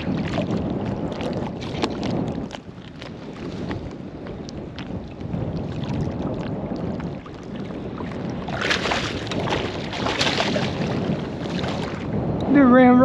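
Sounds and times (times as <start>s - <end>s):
water lapping: 0.0s - 12.3s
wind on microphone: 0.0s - 13.0s
fish splashing at surface: 5.6s - 12.0s.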